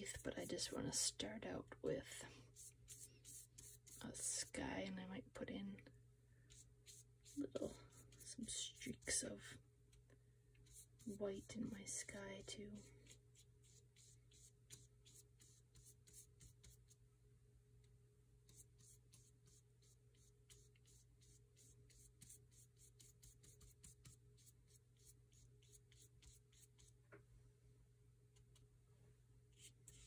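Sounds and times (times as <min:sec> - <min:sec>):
paintbrush swishing on paper: 0:02.5 - 0:04.5, 0:06.5 - 0:09.2, 0:12.7 - 0:17.0, 0:18.4 - 0:27.0, 0:29.5 - 0:30.0.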